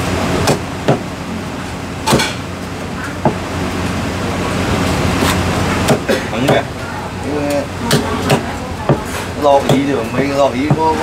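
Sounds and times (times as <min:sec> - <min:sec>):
cleaver chopping into wooden block: 0:02.1 - 0:02.3.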